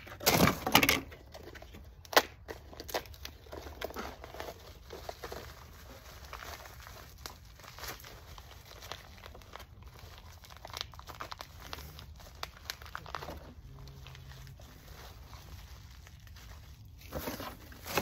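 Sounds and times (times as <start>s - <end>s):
packing material crinkling: 0.0s - 18.0s.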